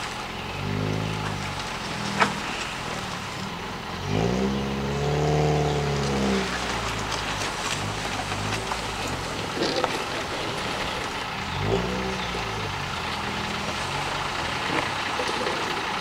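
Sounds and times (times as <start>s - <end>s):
metal box dragged across gravel: 6.0s - 11.2s.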